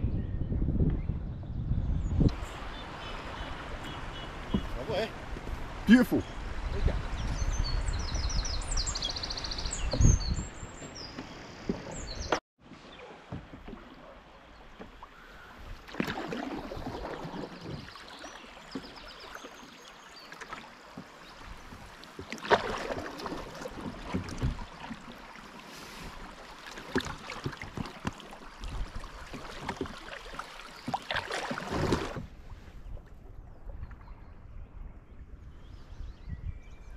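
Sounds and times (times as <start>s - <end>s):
paddles dipping and splashing: 2.3s - 6.7s, 9.5s - 34.2s
birds singing: 5.9s - 13.0s
hiss of moving water: 25.3s - 26.8s.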